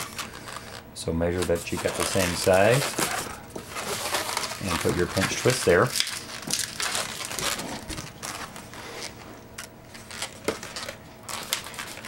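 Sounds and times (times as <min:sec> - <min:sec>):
balloons rubbing: 0:01.4 - 0:05.9.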